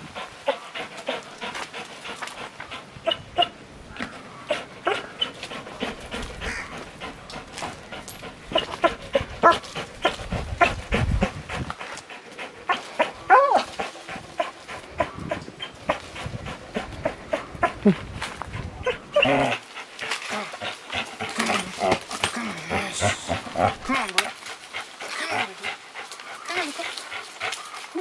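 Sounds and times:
dog panting: 0:00.0 - 0:03.5, 0:04.1 - 0:28.0
dog whining: 0:18.8 - 0:19.6.

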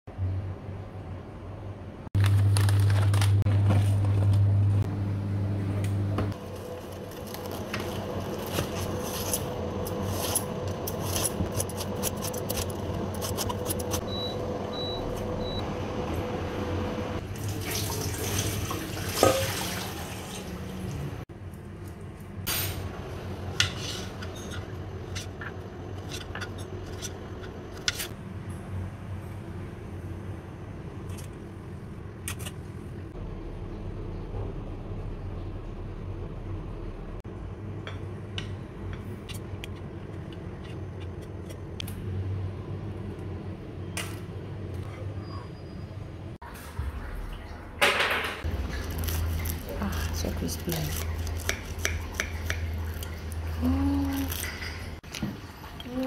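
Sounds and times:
electrical hum: 0:00.1 - 0:18.3, 0:20.2 - 0:56.0.

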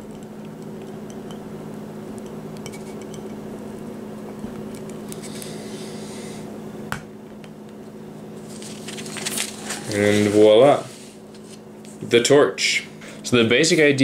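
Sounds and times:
steady low hum: 0:00.0 - 0:14.0
paper rustling: 0:08.4 - 0:11.6.

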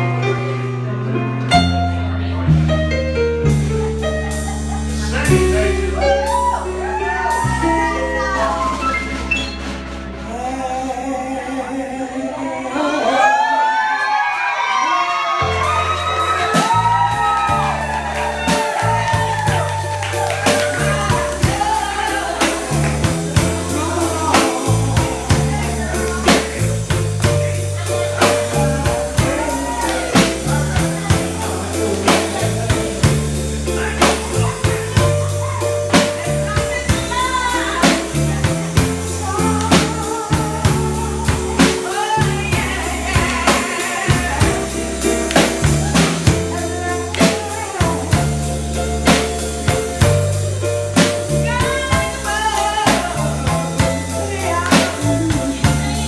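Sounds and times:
bass guitar: 0:00.0 - 0:13.4, 0:15.2 - 0:56.0
drum kit beat: 0:02.6 - 0:11.0, 0:15.4 - 0:56.0
woman singing into a microphone: 0:10.3 - 0:13.8, 0:23.4 - 0:26.5, 0:39.1 - 0:45.1, 0:51.4 - 0:56.0.

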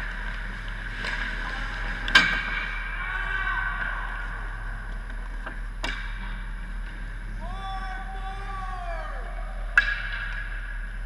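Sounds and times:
ice skates scraping on ice: 0:00.0 - 0:02.8.

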